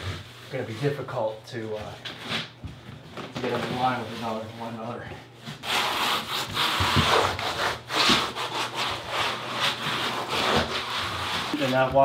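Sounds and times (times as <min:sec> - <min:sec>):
hand float scraping membrane: 0:03.4 - 0:12.0.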